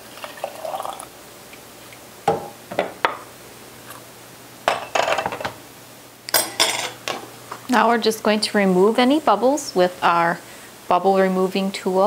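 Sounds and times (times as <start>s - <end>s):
syrup pouring into jar: 0.0s - 1.1s.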